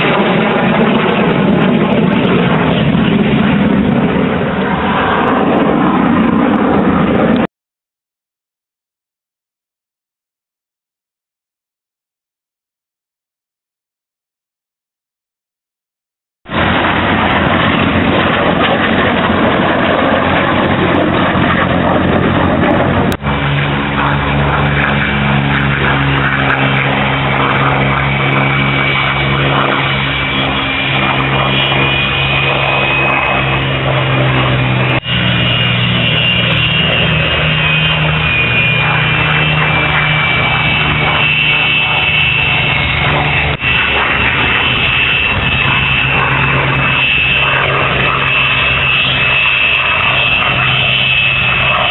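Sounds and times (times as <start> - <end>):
broad rushing noise: 0.0 - 7.5, 16.5 - 51.9
jet engine turbine whine: 0.0 - 7.5, 16.5 - 51.9
low droning hum: 16.5 - 51.9.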